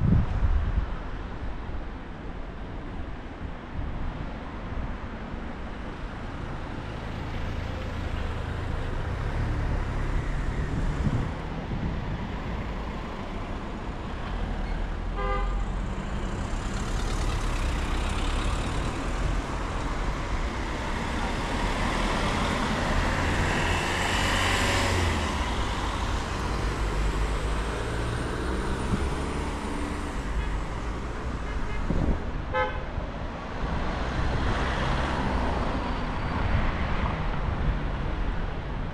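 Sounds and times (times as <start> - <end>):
vehicles driving past: 0.0 - 38.9
car horn toot: 15.2 - 15.6, 32.5 - 32.9.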